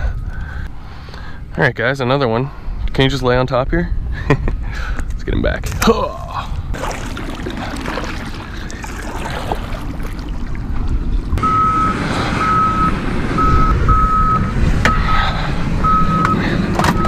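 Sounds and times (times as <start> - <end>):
reversing alarm beeping: 11.4 - 15.1, 15.8 - 17.0.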